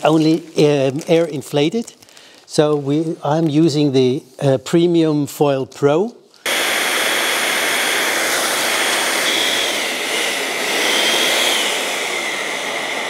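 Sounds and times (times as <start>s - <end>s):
electric balloon inflator blowing air: 6.4s - 13.0s.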